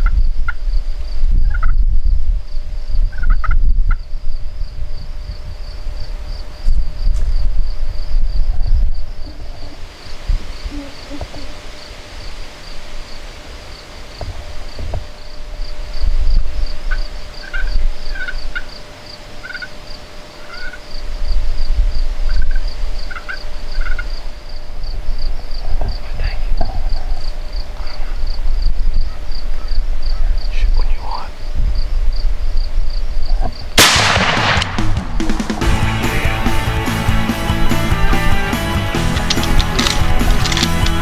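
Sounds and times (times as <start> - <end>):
pulsing insect chirp: 0.0 - 33.8
turkey gobbling: 1.5 - 1.7, 3.1 - 4.0, 16.9 - 18.8, 19.4 - 19.8, 20.4 - 20.8, 22.3 - 24.2
low rumble: 33.8 - 37.7.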